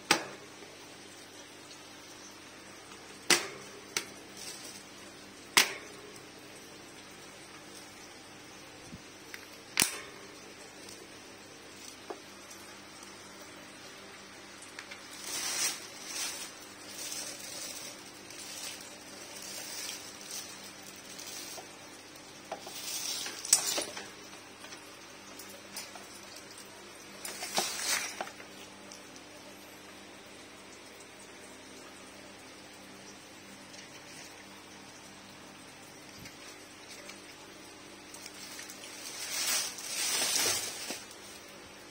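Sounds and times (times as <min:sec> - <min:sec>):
clatter and rustling: 0:27.2 - 0:28.5, 0:38.5 - 0:41.1.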